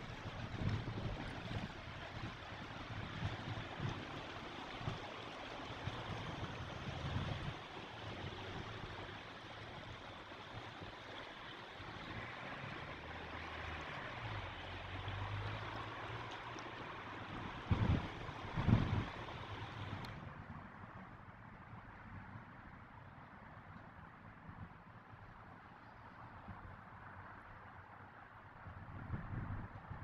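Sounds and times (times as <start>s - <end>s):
river water rushing: 0.0s - 20.9s.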